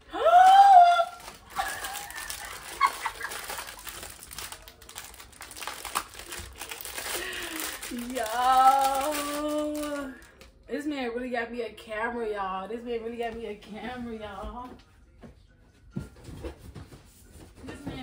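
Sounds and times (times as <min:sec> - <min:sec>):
packaging crinkling: 0:01.0 - 0:10.5.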